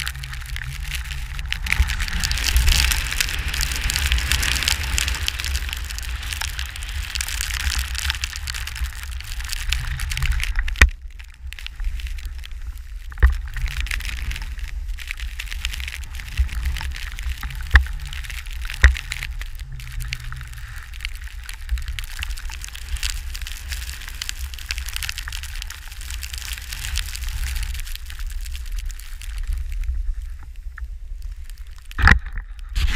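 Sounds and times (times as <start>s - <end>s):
skis hissing through powder snow: 0.0s - 10.6s, 32.7s - 32.9s
wind buffeting microphone: 0.0s - 24.6s.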